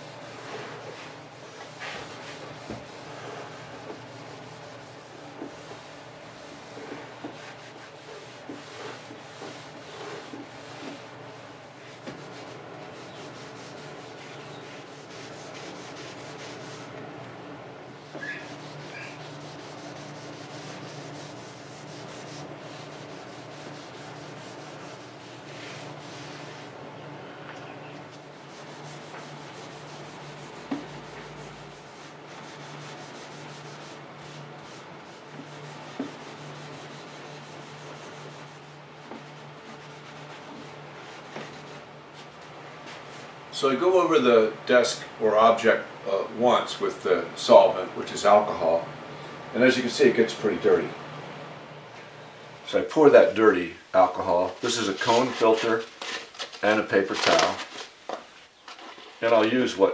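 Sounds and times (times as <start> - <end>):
steel wool scrubbing wood: 0.0 - 17.0, 18.0 - 26.8, 28.1 - 43.3, 54.0 - 57.8.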